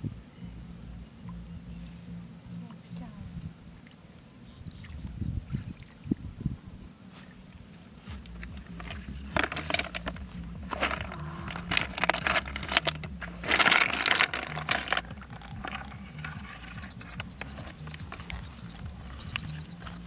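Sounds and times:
snail shells clattering in bucket: 8.4s - 20.0s.

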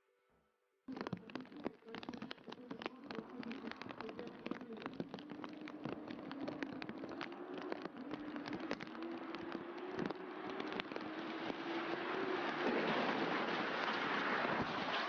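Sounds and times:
rain ticking: 0.9s - 15.0s
car engines humming: 5.5s - 15.0s.

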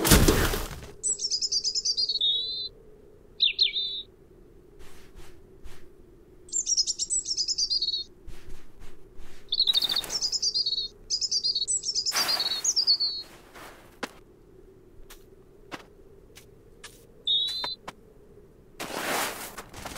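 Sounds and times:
cartoon bird twittering chirps: 1.0s - 2.7s, 3.4s - 4.1s, 6.5s - 8.1s, 9.5s - 13.3s, 17.3s - 17.8s.

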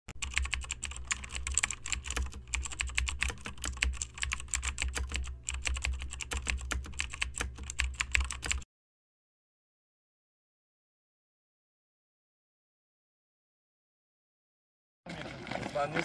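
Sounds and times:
computer keyboard typing: 0.1s - 8.7s.

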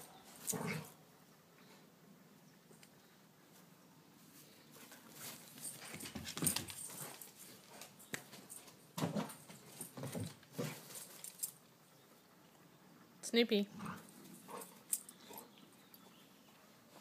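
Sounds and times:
rustling: 3.5s - 11.7s.

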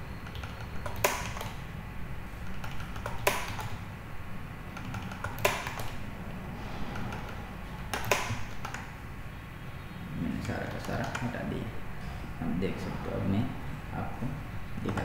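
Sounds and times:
low steady hum: 0.0s - 15.0s
keyboard keys clicking: 0.2s - 1.6s, 2.4s - 3.8s, 4.8s - 6.0s, 10.4s - 11.3s.

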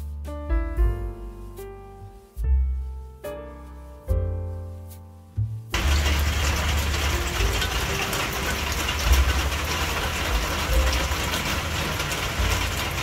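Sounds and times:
heavy rain patter: 5.7s - 13.0s.

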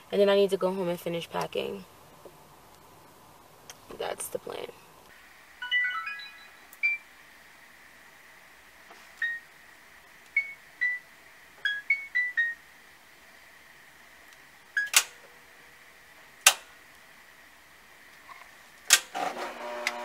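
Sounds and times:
washing machine button beeps: 5.7s - 7.0s, 9.2s - 9.4s, 10.4s - 11.0s, 11.6s - 12.6s, 14.8s - 15.0s.

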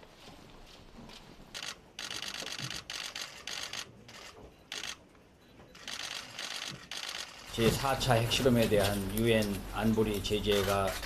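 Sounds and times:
camera shutters clicking: 1.6s - 5.0s, 5.8s - 7.6s.

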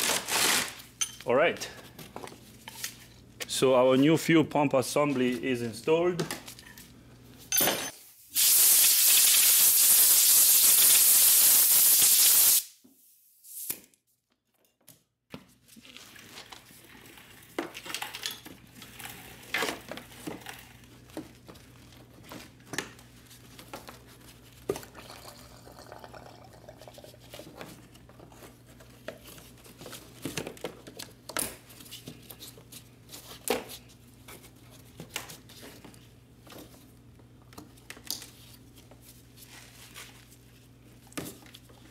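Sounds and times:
spray nozzle hissing: 8.4s - 12.7s.

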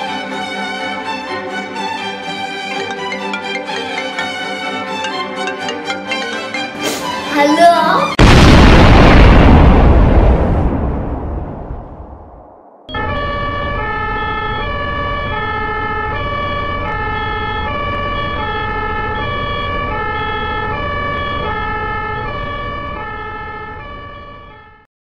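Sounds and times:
loud noisy boom: 8.2s - 13.9s
two-tone ambulance siren: 12.9s - 24.9s.

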